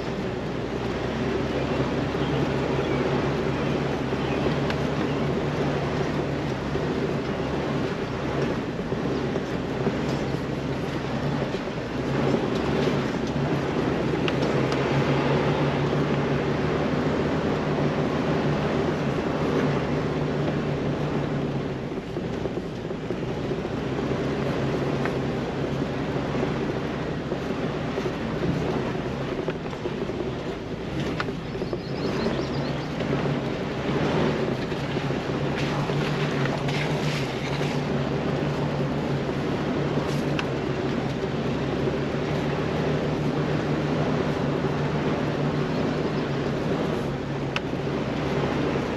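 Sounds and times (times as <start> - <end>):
car engine running at low revs: 0.0 - 48.9
knocks and rattles over rocks: 19.4 - 48.9.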